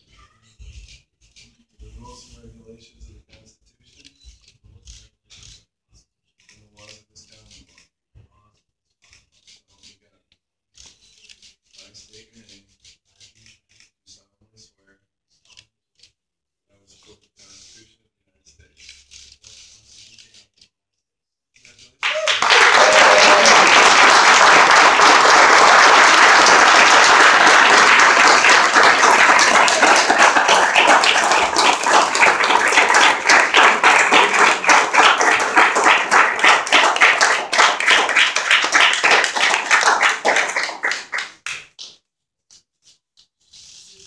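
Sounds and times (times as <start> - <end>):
crowd applauding: 22.0 - 41.9.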